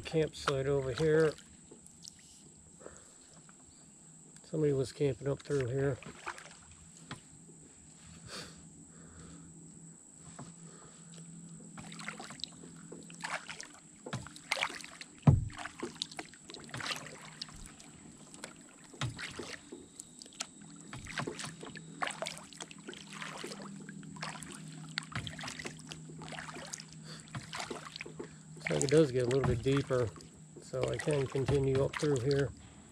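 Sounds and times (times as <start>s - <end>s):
paddle splashing in water: 0.0s - 2.3s, 5.4s - 7.3s, 11.6s - 32.6s
water dripping: 11.5s - 32.6s.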